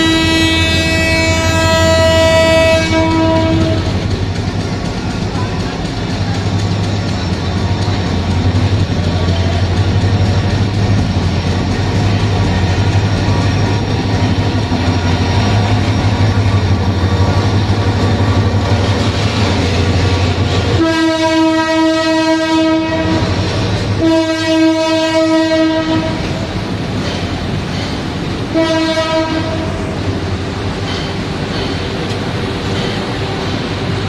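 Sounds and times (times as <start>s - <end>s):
train horn blasts: 0.0s - 4.1s, 20.7s - 26.5s, 28.5s - 30.0s
locomotive engine drone: 0.0s - 34.0s
train coaches rumbling: 0.0s - 34.0s.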